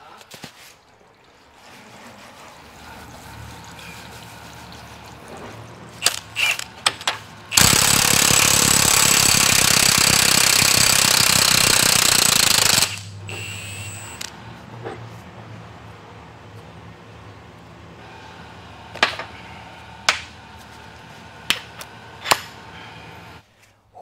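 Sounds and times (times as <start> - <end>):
impact wrench hammering: 6.0 - 14.3.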